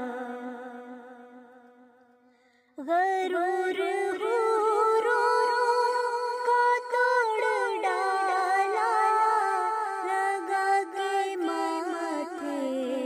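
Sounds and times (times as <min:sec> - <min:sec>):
person singing ornamented notes: 0:02.8 - 0:13.0.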